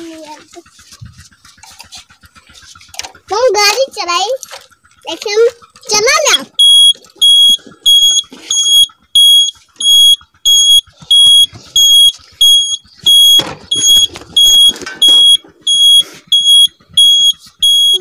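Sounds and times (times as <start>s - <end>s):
high-pitched electronic beeps: 6.6s - 18.0s.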